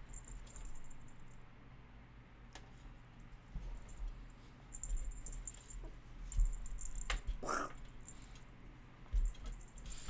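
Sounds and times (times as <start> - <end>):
cat breathy rasp: 7.4 - 7.8.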